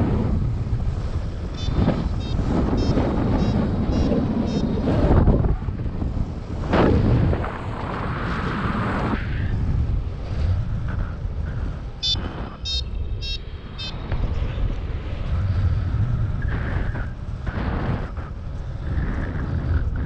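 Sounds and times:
wind buffeting microphone: 0.0 - 20.0
short high-pitched beeps: 1.6 - 4.7, 12.0 - 14.0.

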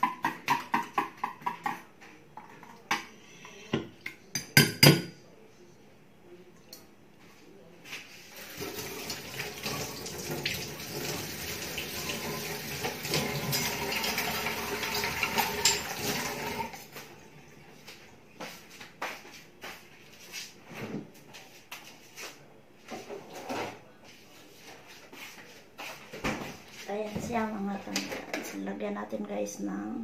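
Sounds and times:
kitchenware knocks and clinks: 0.0 - 3.1, 3.8 - 5.2, 15.2 - 16.2
tap water running into sink: 8.4 - 16.8.

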